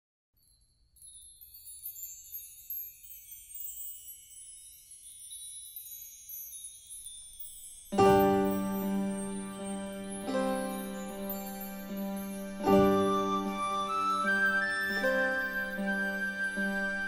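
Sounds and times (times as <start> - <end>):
high tinkling chime notes: 0.4 - 17.0
music with sustained low notes: 7.9 - 17.0.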